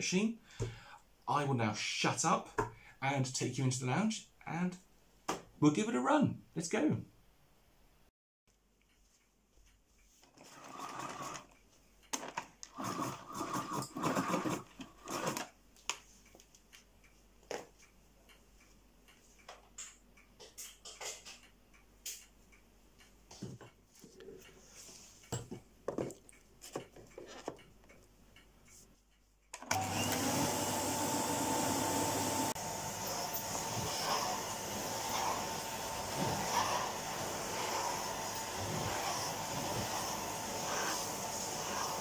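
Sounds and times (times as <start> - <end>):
vacuum cleaner handling noise: 29.6 - 42.0
vacuum cleaner motor whining: 29.6 - 42.0.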